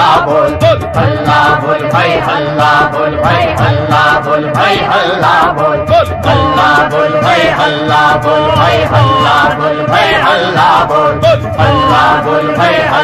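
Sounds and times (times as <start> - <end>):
crowd chanting melodically: 0.0 - 13.0.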